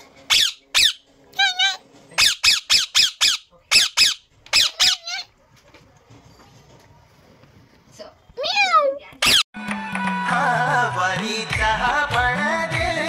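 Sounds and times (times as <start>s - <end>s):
parakeet screeching: 0.3s - 5.3s, 9.2s - 9.4s.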